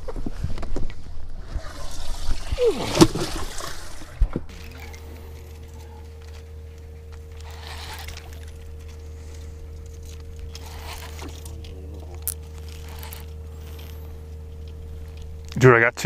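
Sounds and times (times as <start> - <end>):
handling noises on boat: 0.0 - 15.6
faint constant whine: 0.0 - 16.0
steady low hum: 0.0 - 16.0
water swishing: 1.4 - 5.4.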